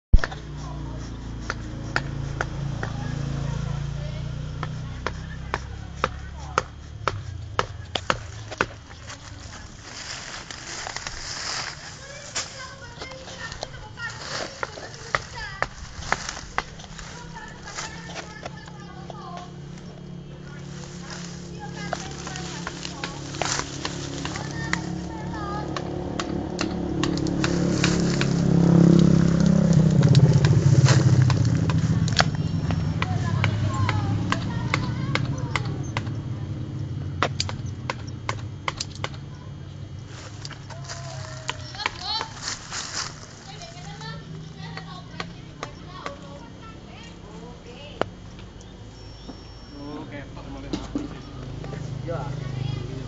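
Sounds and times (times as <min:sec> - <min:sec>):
motorcycle-like engine running: 0:00.0 - 0:53.0
footsteps on dry leaves: 0:07.6 - 0:35.1, 0:40.0 - 0:47.5
leafy branches rustling: 0:08.0 - 0:35.1, 0:39.4 - 0:48.9
sharp clicks: 0:37.2 - 0:39.2.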